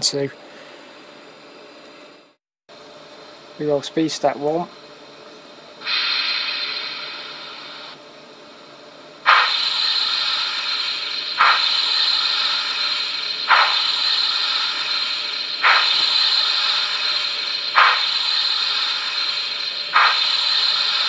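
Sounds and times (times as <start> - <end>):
model locomotive steam hiss: 5.8 - 8.0, 9.3 - 21.0
sharp steam chuff: 5.8 - 8.0, 9.3 - 21.0.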